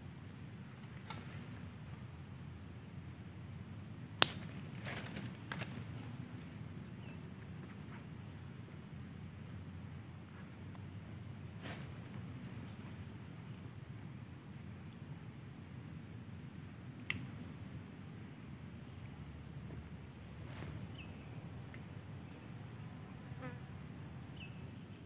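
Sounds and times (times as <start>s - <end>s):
insect chorus: 0.0s - 25.0s.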